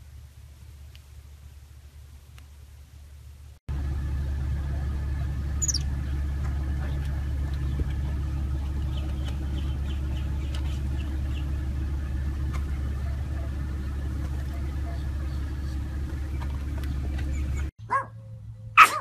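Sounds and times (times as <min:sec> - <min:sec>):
car cabin rumble: 0:03.7 - 0:18.4
monkey chirps: 0:05.6 - 0:05.9
monkey squeak: 0:05.6 - 0:05.9.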